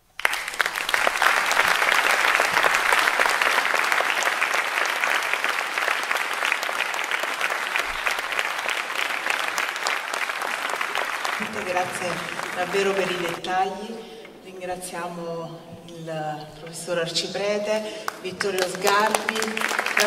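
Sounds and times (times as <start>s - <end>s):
audience applauding: 0.0s - 13.5s, 18.1s - 20.0s.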